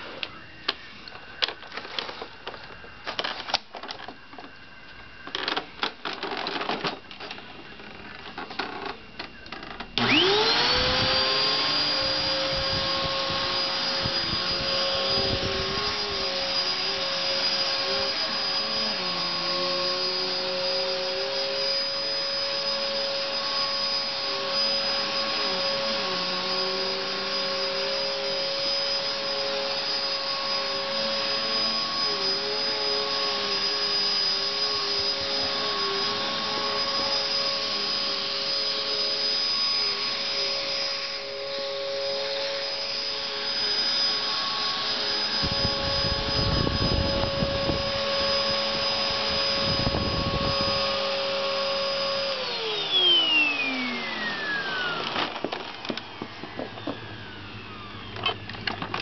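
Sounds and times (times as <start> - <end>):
vacuum cleaner motor whine: 0.0 - 59.0.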